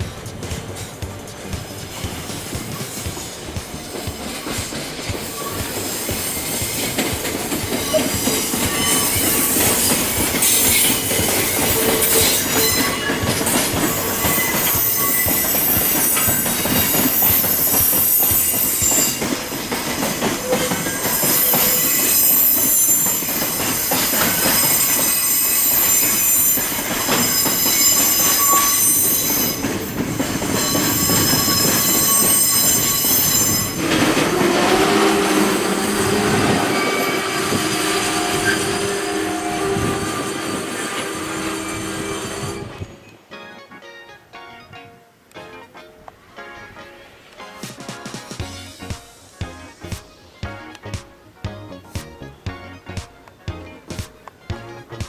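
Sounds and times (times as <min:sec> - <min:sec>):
wheels clicking over rail joints: 0:00.0 - 0:43.3
train wheels squealing: 0:03.8 - 0:43.1.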